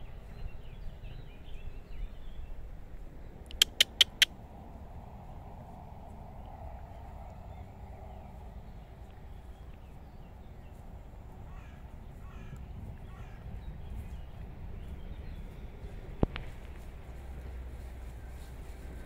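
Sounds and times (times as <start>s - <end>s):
faint bird calls: 3.5s - 4.3s, 11.4s - 13.5s
sharp click: 3.5s - 4.3s.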